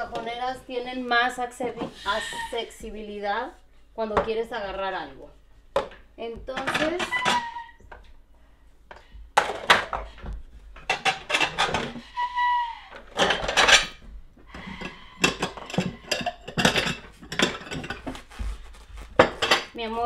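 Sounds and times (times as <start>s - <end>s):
ceramic plates clinking: 6.5s - 7.7s, 10.8s - 12.3s, 13.0s - 14.0s, 14.6s - 18.1s, 19.2s - 19.8s.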